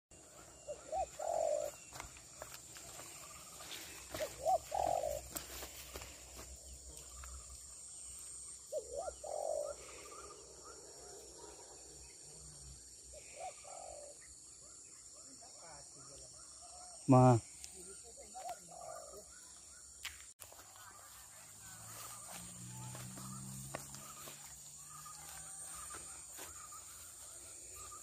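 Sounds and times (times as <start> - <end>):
dove cooing: 0.6 - 2.0, 4.0 - 5.5, 8.7 - 11.1, 13.1 - 14.3.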